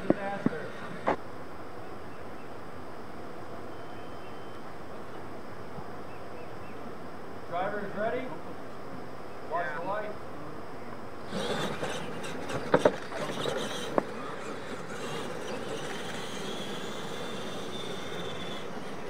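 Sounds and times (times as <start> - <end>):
tyres churning dirt: 0.0 - 1.2, 11.2 - 19.0
thin high motor whine: 0.0 - 19.0
electric motors whining: 11.2 - 19.0
trucks knocking on ramps: 11.3 - 19.0.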